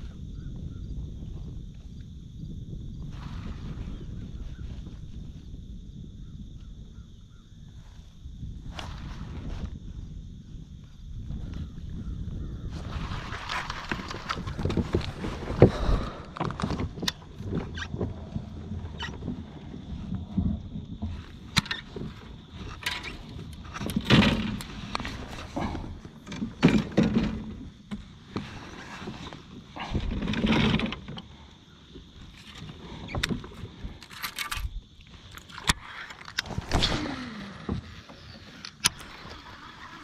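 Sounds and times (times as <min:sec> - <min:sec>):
knocks and bumps on kayak: 0:23.8 - 0:31.2.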